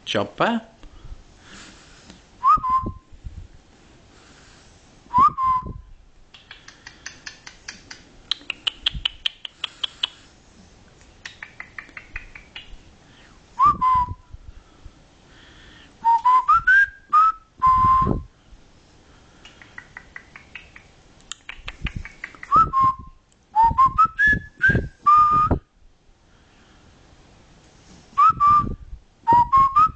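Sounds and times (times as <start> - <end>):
raspy clicking bird chatter: 6.3 - 10.2, 11.2 - 12.8, 19.4 - 22.6.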